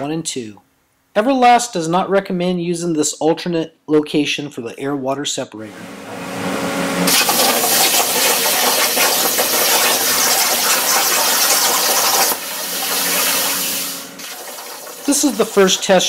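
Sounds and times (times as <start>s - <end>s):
plasma cutter arc hissing: 7.1s - 16.0s.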